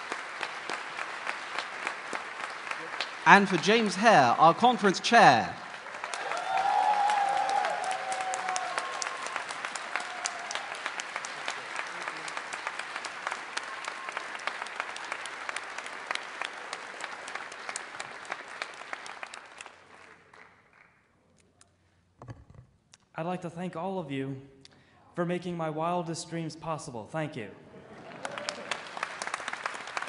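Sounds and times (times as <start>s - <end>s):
audience applauding: 0.0s - 21.0s, 27.8s - 30.0s
audience cheering: 2.7s - 15.9s, 27.9s - 30.0s.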